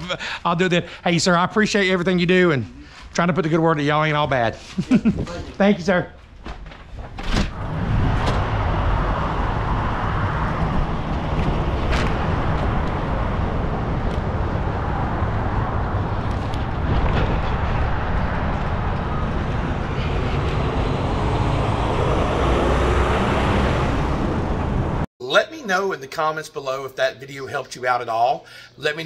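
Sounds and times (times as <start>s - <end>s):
highway traffic: 7.5s - 25.1s.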